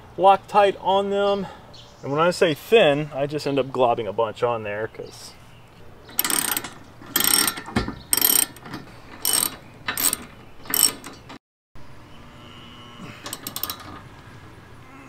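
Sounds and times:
ratchet wrench clicking: 6.1 - 11.2, 13.3 - 13.9.

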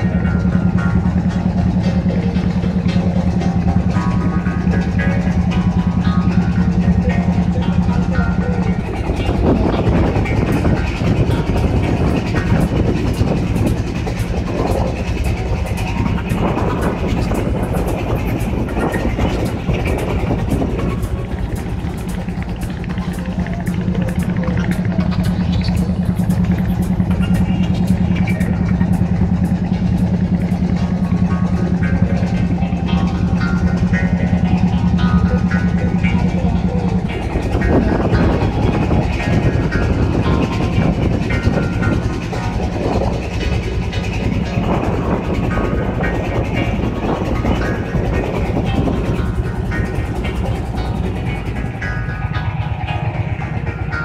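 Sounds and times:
motorboat engine throbbing: 0.0 - 54.0.

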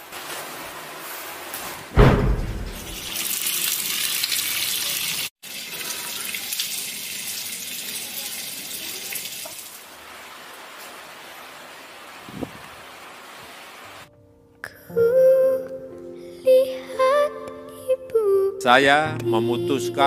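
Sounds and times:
low thud: 2.0 - 3.1
water gushing from tap: 2.7 - 9.8.

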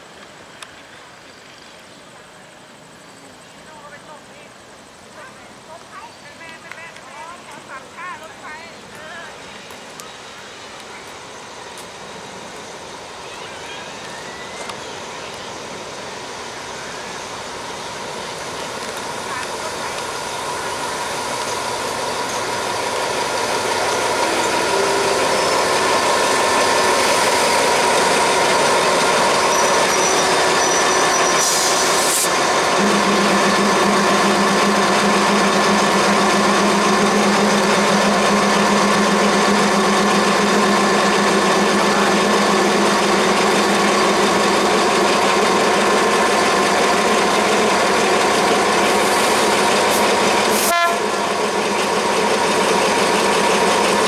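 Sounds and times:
diesel locomotive engine drone: 0.0 - 54.0
brief hiss: 31.3 - 32.4.

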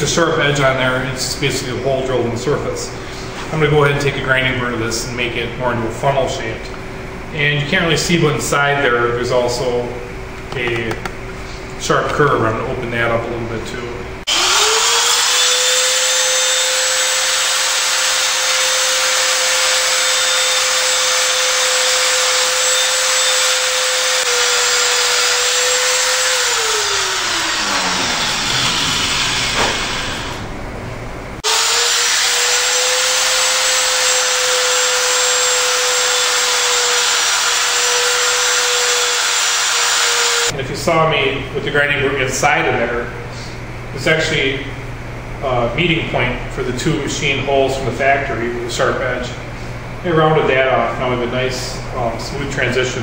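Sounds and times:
die grinder whining: 14.3 - 30.5, 31.4 - 40.5.

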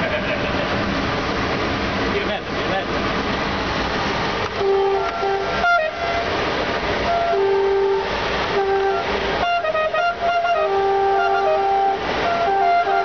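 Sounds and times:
train rumbling on rails: 0.0 - 13.0
locomotive horn blasts: 4.6 - 13.0.

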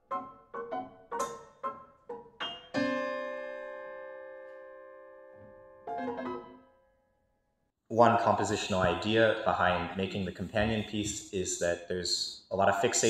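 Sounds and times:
prepared piano notes and chords: 0.0 - 6.7.

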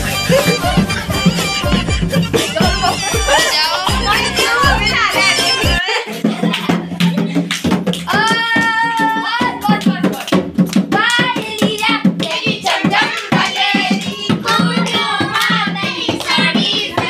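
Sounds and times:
high-pitched singing: 0.1 - 6.3.

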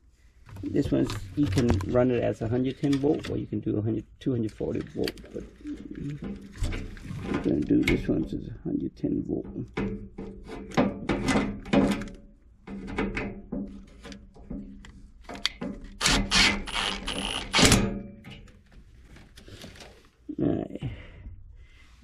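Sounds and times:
clicks and metal taps: 9.5 - 16.0.

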